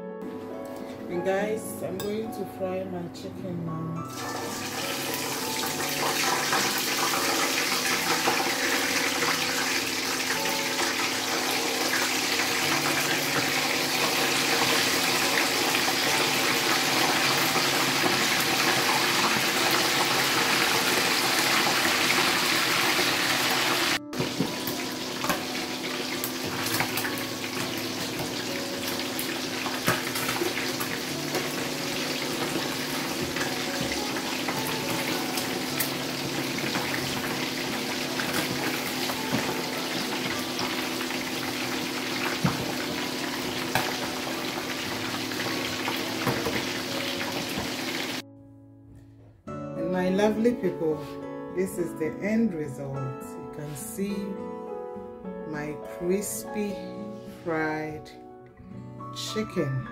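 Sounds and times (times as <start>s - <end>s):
chicken deep-frying in oil: 4.1s - 48.2s
oil crackling and popping: 5.0s - 48.2s.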